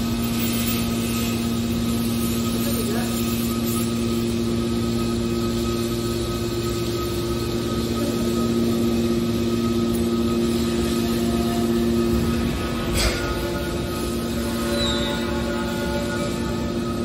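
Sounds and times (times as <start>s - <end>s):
hydraulic baler motor humming: 4.3s - 17.0s.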